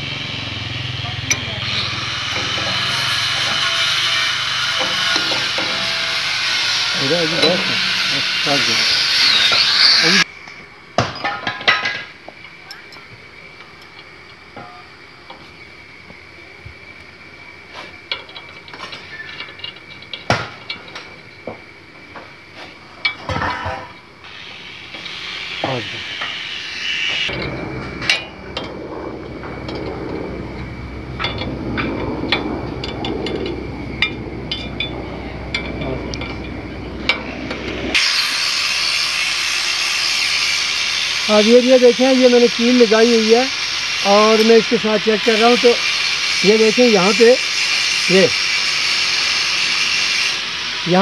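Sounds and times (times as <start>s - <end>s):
steady hiss: 0.0s - 51.0s
spanner clinking on metal: 1.3s - 10.2s, 18.0s - 21.3s, 27.3s - 38.0s
low rumble: 27.3s - 38.0s.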